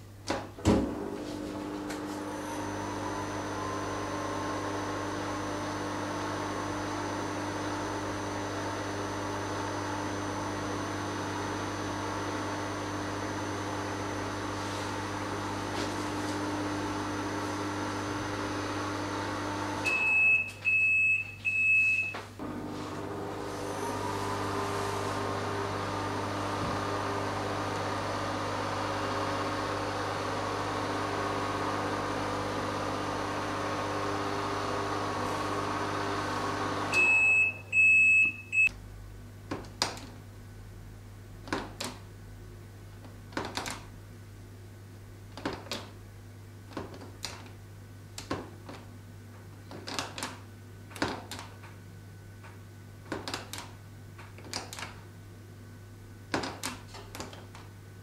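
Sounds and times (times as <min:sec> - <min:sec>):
microwave oven humming: 0:00.1 - 0:39.5, 0:47.4 - 0:56.3
microwave beeps: 0:19.8 - 0:22.3, 0:36.9 - 0:38.7.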